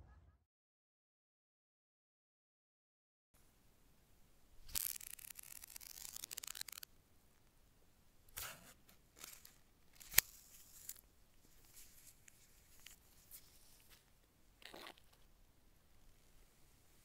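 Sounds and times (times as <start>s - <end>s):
paper card rustling and crinkling: 4.7s - 6.9s, 9.2s - 14.1s.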